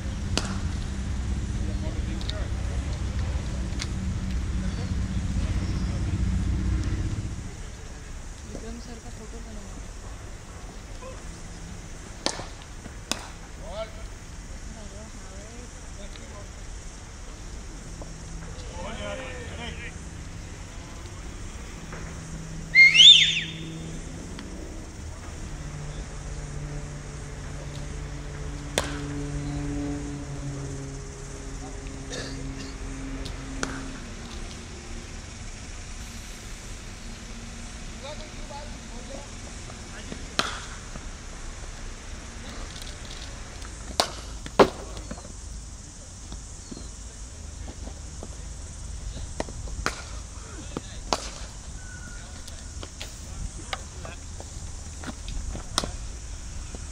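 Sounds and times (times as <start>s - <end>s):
cricket bat hitting ball: 12.2s - 13.4s, 28.7s - 29.2s, 40.3s - 40.9s, 43.9s - 45.1s, 49.7s - 50.2s, 51.1s - 51.5s
whistled call: 22.6s - 24.0s, 51.7s - 52.7s.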